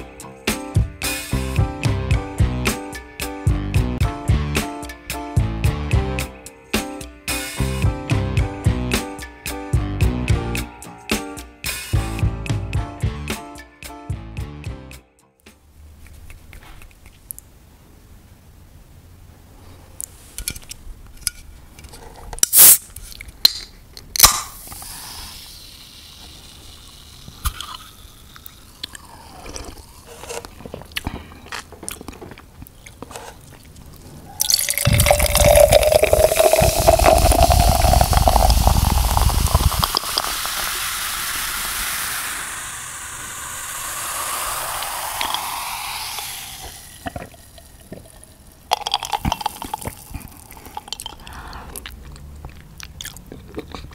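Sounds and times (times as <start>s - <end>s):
fizzing drink hiss: 24.4s - 29.9s, 34.4s - 51.3s
drink pouring into glass jar: 34.4s - 42.3s, 43.4s - 51.3s.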